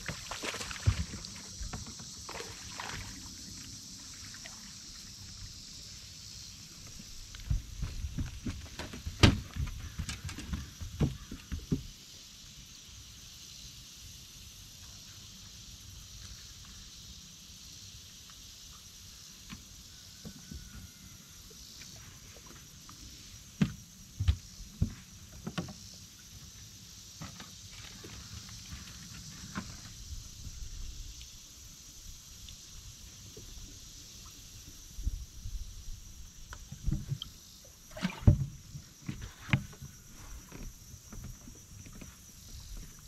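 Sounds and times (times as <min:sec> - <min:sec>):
faint steady hiss: 0:00.0 - 0:43.0.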